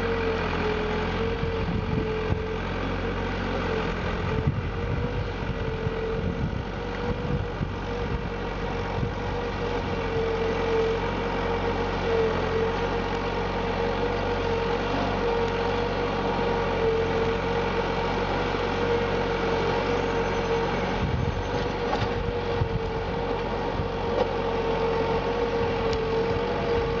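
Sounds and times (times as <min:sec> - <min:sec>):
steady whining tone: 0:00.0 - 0:27.0
tractor diesel engine running: 0:00.0 - 0:27.0.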